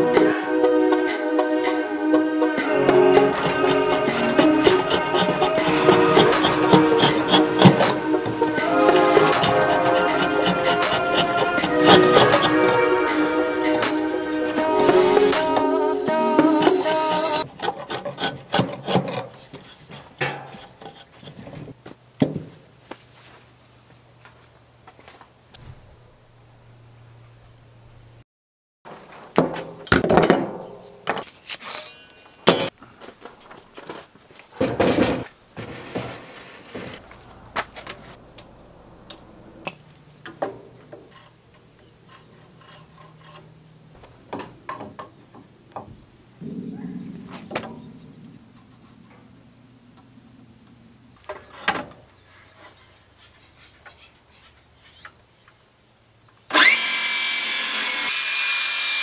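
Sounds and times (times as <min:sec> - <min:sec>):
circular saw cutting timber: 0:01.6 - 0:21.4, 0:41.0 - 0:43.6, 0:56.5 - 0:59.0
hand tools knocking and scraping: 0:02.5 - 0:22.5, 0:29.3 - 0:38.2, 0:39.2 - 0:46.1
lumber being handled: 0:02.9 - 0:15.6.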